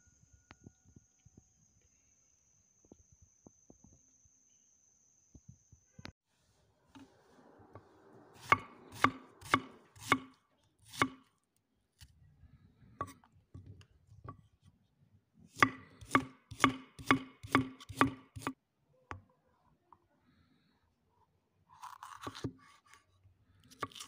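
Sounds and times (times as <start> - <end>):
knife chopping on wooden board: 8.4 - 11.2, 15.5 - 18.6.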